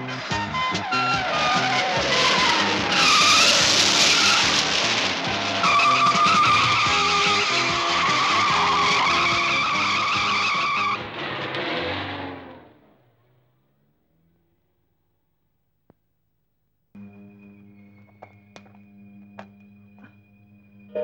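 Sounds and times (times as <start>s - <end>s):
car tyres squealing: 0.0s - 14.5s.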